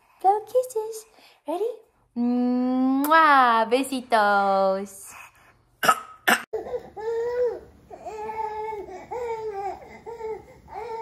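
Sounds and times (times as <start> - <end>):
baby crying: 6.6 - 11.0.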